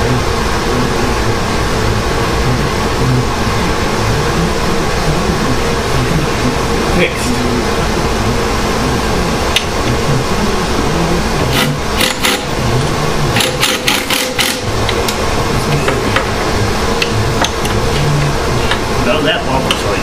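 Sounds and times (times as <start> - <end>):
background hum: 0.0 - 20.0.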